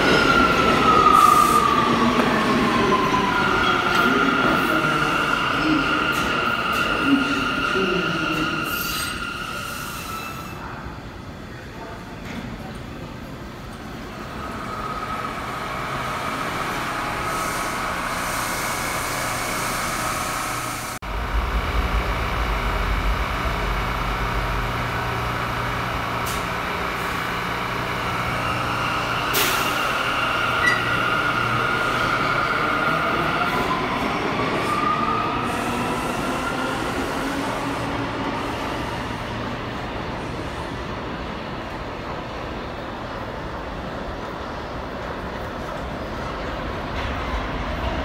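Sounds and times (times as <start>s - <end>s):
heavy low rumble: 21.0s - 26.1s.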